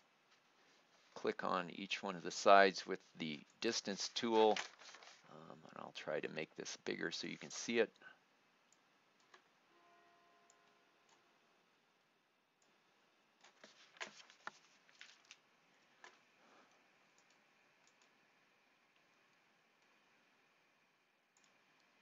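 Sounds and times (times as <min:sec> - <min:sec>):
computer mouse clicks: 0:16.0 - 0:18.2, 0:21.4 - 0:22.0.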